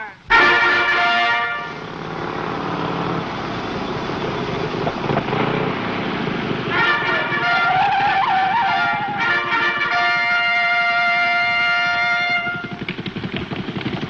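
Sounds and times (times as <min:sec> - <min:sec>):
motorcycle engine running: 0:00.0 - 0:14.0
trumpet note: 0:00.3 - 0:03.2, 0:06.6 - 0:12.8
sustained pitched note: 0:00.3 - 0:12.7.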